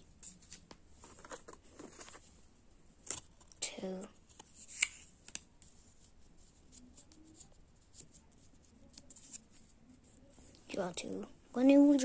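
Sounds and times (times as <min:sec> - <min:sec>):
cards rustling and flicked: 0:00.1 - 0:02.4, 0:03.0 - 0:09.8.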